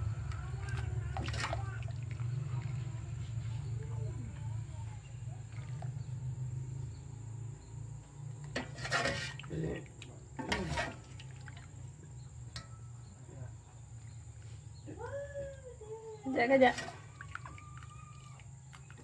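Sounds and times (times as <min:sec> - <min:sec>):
low hum: 0:00.0 - 0:19.0
liquid sloshing splashes: 0:00.5 - 0:03.1, 0:08.6 - 0:12.7, 0:16.6 - 0:19.0
ladle scooping and pouring gravy: 0:00.7 - 0:03.1, 0:08.4 - 0:12.9, 0:16.7 - 0:19.0.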